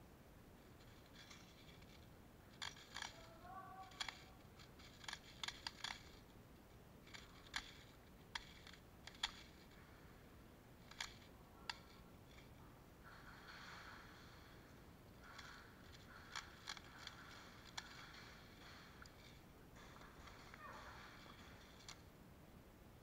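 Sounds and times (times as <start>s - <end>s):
sharp clicks and snaps: 1.1s - 6.3s, 7.0s - 9.8s, 10.8s - 12.6s, 15.1s - 22.1s.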